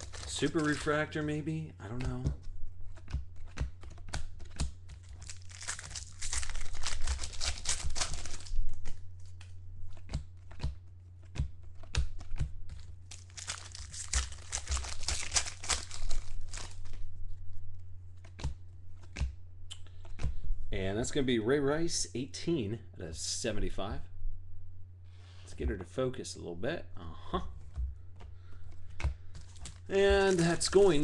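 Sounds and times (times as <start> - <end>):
cards clicking and tapping: 0.0 - 1.0, 1.9 - 17.0, 18.2 - 20.4, 27.6 - 31.0
foil wrappers crinkling and tearing: 0.0 - 1.3, 4.5 - 9.4, 13.0 - 17.0, 28.6 - 31.0
steady low hum: 0.0 - 31.0.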